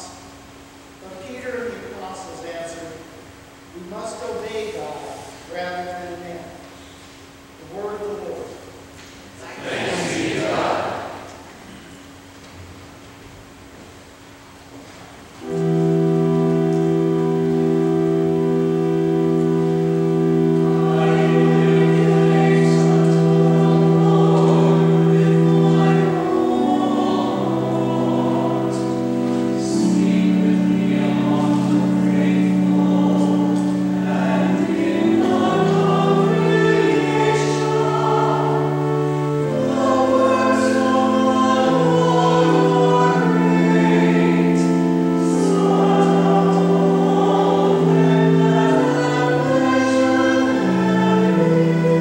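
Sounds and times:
pipe organ chords: 0:00.0 - 0:52.0
choir singing in parts: 0:09.4 - 0:11.4, 0:15.4 - 0:52.0.

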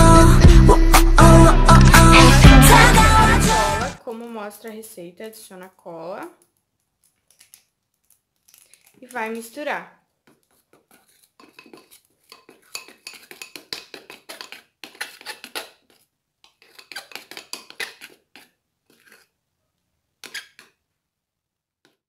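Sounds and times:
spoon scraping glass bowl: 0:10.3 - 0:19.3, 0:20.2 - 0:20.8.

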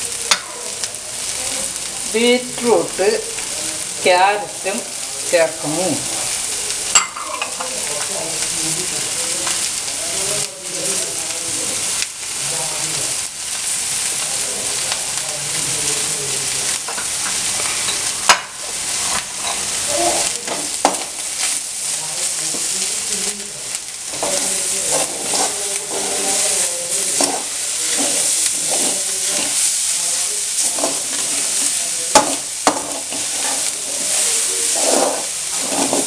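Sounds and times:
vegetables sizzling in a pan: 0:00.0 - 0:36.0
utensil clicking on pan: 0:00.2 - 0:01.0, 0:20.3 - 0:21.6, 0:23.7 - 0:36.0.

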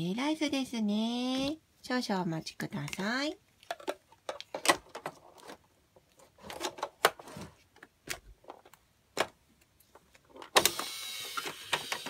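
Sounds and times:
plastic toy clicks and knocks: 0:10.3 - 0:12.0.

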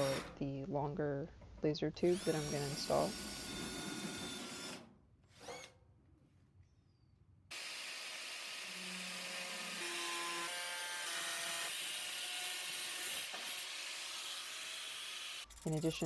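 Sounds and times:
angle grinder cutting steel: 0:07.5 - 0:16.0.

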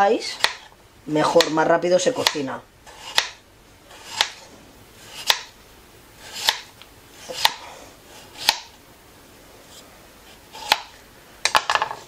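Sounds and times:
knife slicing potato: 0:00.0 - 0:05.5, 0:06.2 - 0:08.8, 0:10.2 - 0:11.0.

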